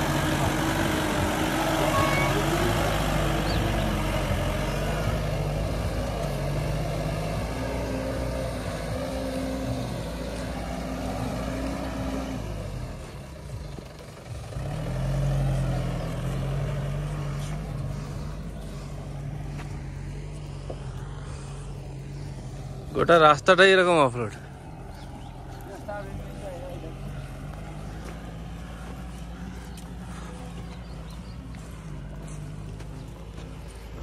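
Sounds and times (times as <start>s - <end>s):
vehicle engine droning: 0.0s - 34.0s.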